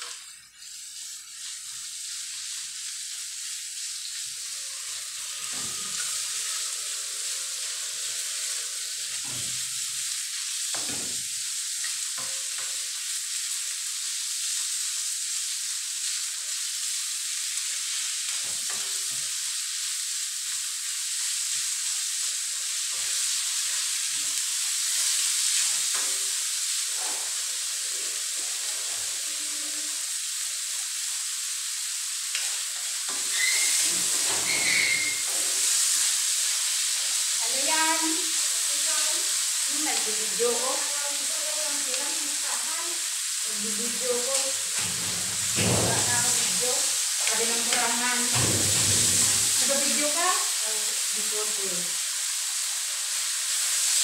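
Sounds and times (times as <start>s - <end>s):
meat sizzling in a wok: 0.0s - 54.0s
ladle scraping a pan: 33.1s - 35.7s.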